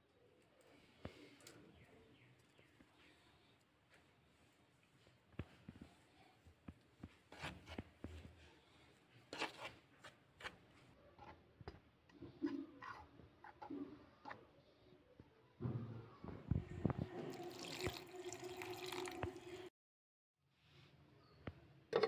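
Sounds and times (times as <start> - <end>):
spoon scraping in plastic bowl: 9.3 - 10.6.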